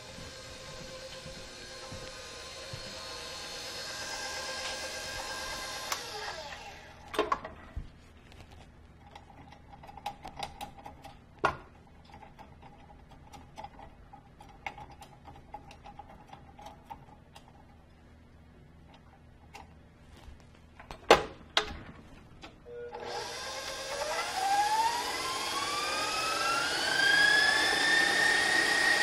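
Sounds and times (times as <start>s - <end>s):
stand mixer motor slowing: 0.0s - 7.1s, 23.0s - 29.0s.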